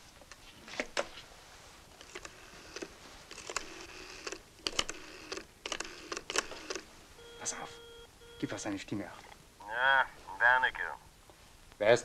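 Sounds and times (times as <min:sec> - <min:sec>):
rotary telephone dial clicking: 0:02.0 - 0:06.8.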